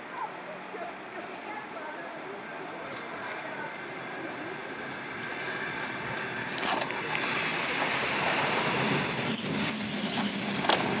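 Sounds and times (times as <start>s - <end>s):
electric train running noise: 2.0s - 11.0s
steady high squeal: 7.3s - 11.0s.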